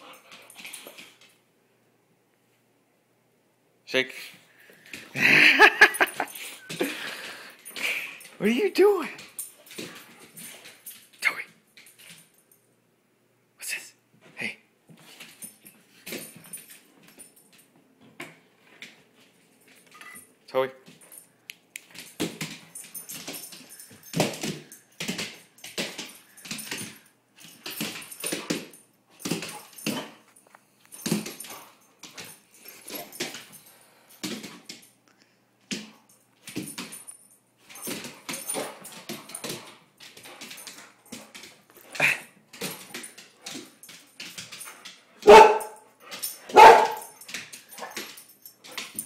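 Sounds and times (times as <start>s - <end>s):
dog barking: 45.2s - 45.8s, 46.5s - 47.2s.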